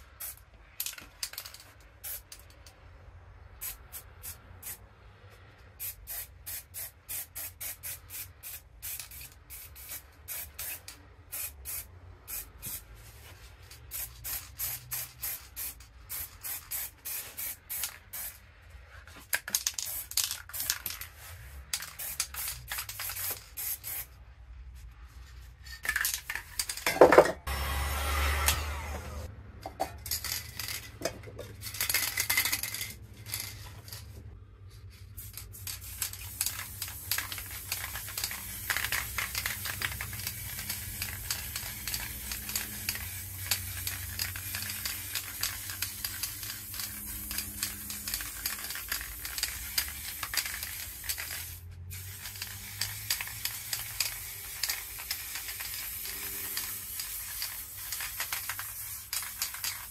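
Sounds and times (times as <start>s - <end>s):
spray paint can hissing: 0.2s - 2.5s, 3.6s - 4.8s, 5.8s - 18.4s, 19.4s - 24.2s, 34.9s - 59.9s.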